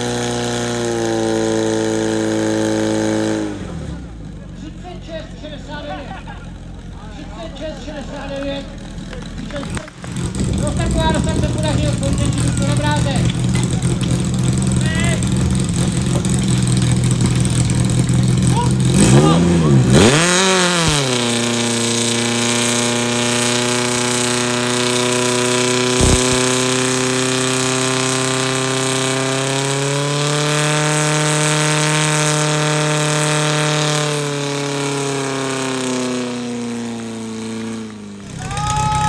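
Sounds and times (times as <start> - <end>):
pump engine running at full throttle: 0.0 - 4.3, 9.6 - 39.0
sharp knock: 26.0 - 26.6.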